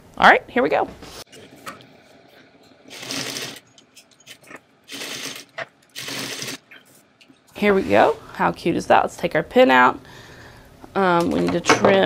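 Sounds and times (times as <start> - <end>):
sewing machine stitching: 2.9 - 3.6, 4.3 - 6.8.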